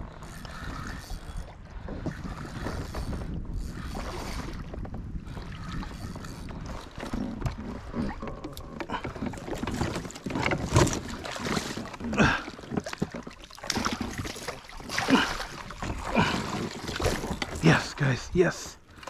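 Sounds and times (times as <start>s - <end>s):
wind on microphone: 0.0s - 12.4s
handling noises on boat: 0.0s - 19.0s
water splashing: 5.4s - 19.0s.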